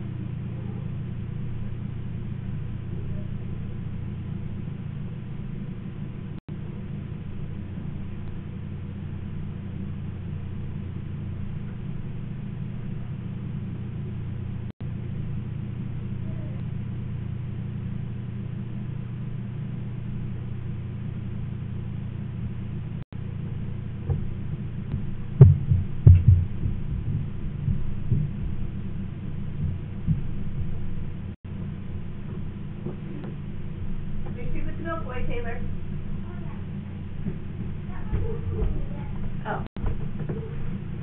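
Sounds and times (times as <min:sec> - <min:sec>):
steady low hum: 0:00.0 - 0:41.0
low knocks and thumps: 0:23.9 - 0:35.4, 0:36.6 - 0:41.0.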